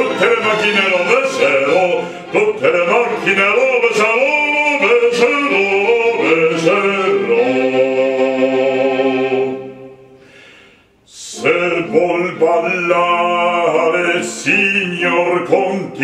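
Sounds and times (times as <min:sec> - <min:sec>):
man singing operatically: 0:00.0 - 0:09.6, 0:11.1 - 0:16.0
quick breath: 0:10.2 - 0:11.0.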